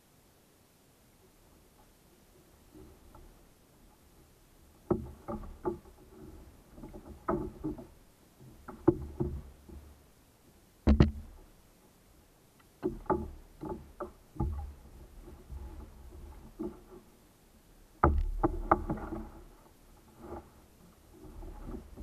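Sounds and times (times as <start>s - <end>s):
pole knocking against kayak hull: 4.8s - 6.1s, 6.8s - 9.9s, 10.9s - 11.5s, 12.8s - 17.0s, 18.0s - 19.5s.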